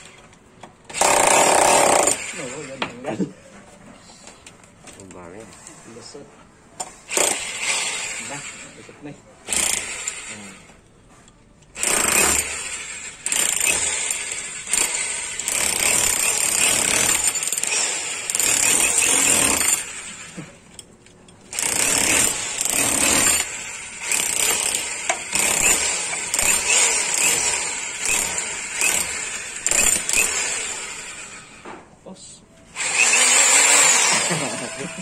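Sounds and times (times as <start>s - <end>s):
rotary hammer chiselling concrete: 0.9s - 2.8s, 7.1s - 8.4s, 9.5s - 10.5s, 11.8s - 20.3s, 21.5s - 31.1s, 32.8s - 35.0s.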